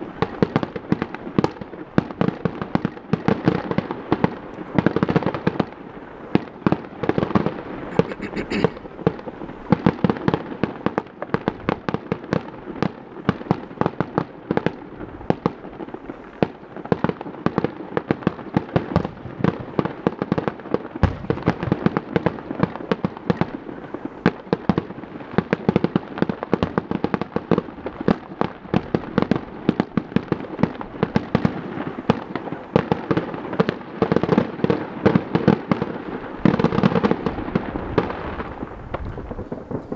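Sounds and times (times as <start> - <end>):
distant fireworks bangs and pops: 0.0 - 39.9.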